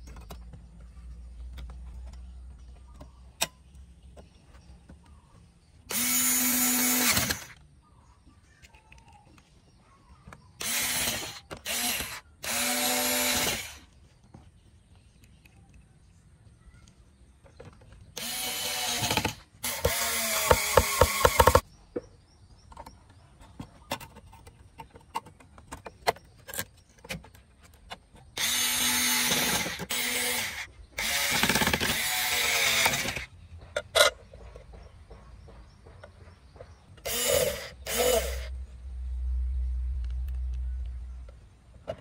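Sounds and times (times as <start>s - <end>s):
electric screwdriver motor whine: 5.9s - 7.6s, 10.6s - 13.8s, 18.2s - 21.6s, 28.4s - 33.3s, 37.0s - 38.5s.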